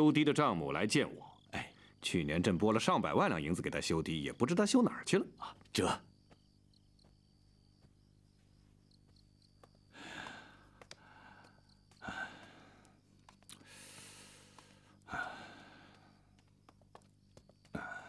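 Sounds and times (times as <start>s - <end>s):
crickets chirping: 0.0s - 18.0s.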